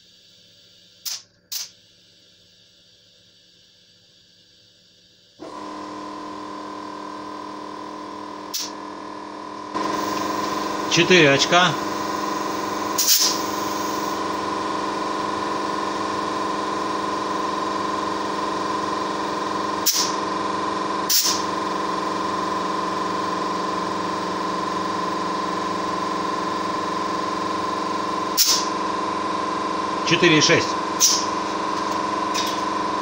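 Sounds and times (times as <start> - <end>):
compressed air hissing into tyre: 0.0 - 2.4, 8.5 - 8.7, 9.8 - 14.2, 19.8 - 20.2, 21.1 - 21.5, 28.3 - 28.7, 31.0 - 31.3
short sharp air gun hisses: 0.1 - 2.3, 8.5 - 8.7, 11.9 - 14.2, 19.8 - 20.2, 21.1 - 21.5, 28.3 - 28.7, 31.0 - 31.3
constant hum: 7.7 - 33.0.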